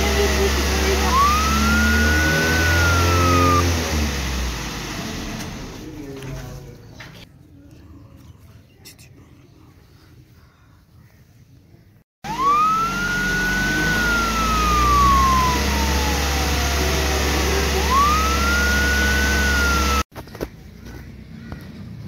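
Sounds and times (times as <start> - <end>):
siren wailing: 1.0 - 3.9, 12.3 - 20.1
low engine rumble: 12.3 - 20.0.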